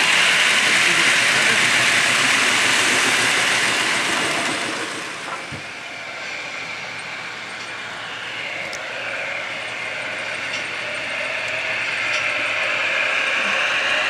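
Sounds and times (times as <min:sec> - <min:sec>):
faint model locomotive running: 0:00.0 - 0:14.0
model train running: 0:00.0 - 0:14.0.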